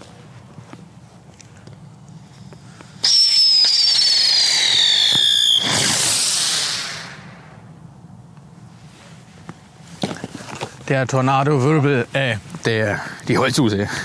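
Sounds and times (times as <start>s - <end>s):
hiss of firework sparks: 3.0s - 7.3s
firework whistle sliding down: 3.0s - 7.5s.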